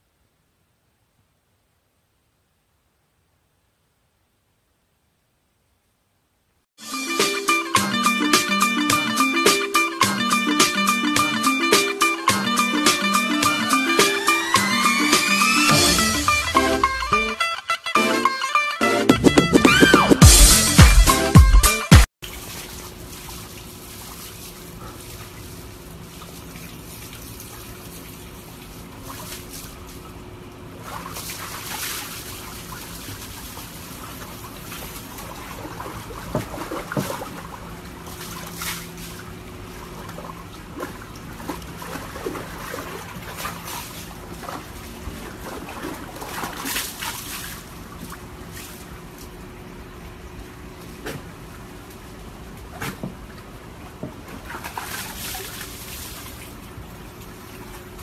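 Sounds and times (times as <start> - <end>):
faint steady hum: 0.0 - 6.7
water splashing in plastic tub: 22.2 - 49.5, 50.7 - 58.0.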